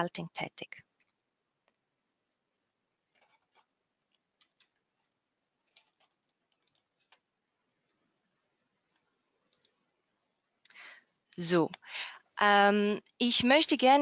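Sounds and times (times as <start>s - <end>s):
faint clicks: 8.9s - 9.8s.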